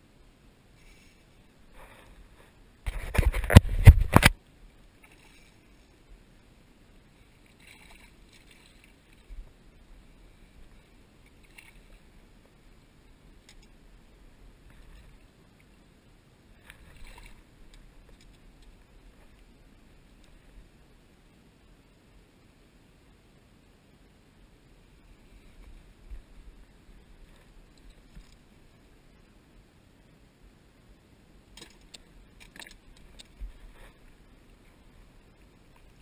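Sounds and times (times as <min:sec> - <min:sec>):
faint water splashes: 0:00.8 - 0:21.5, 0:31.4 - 0:36.0.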